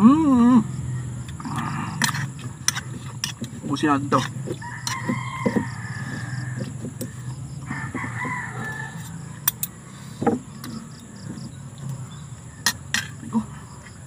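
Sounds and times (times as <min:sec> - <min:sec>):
rooster crowing: 0:04.4 - 0:09.8.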